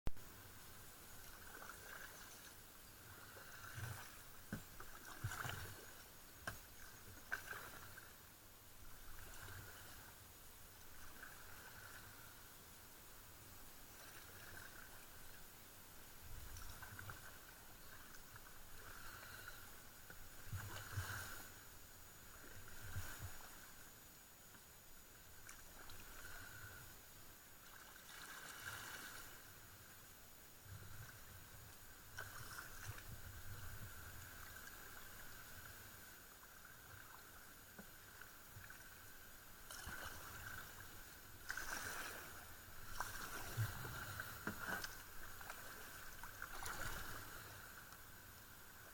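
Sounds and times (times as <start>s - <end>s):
faint paddle splashing in water: 0.2s - 30.0s, 30.6s - 48.9s.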